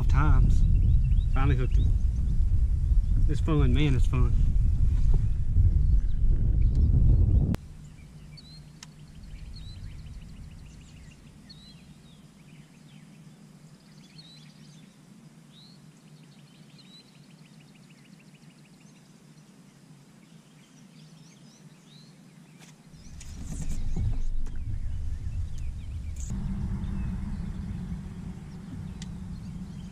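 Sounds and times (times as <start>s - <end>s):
small birds chirping and trilling: 0.0s - 3.5s, 5.7s - 29.9s
low rumble: 0.0s - 12.2s, 23.0s - 29.9s
faint low hum: 0.0s - 22.0s, 22.9s - 29.9s.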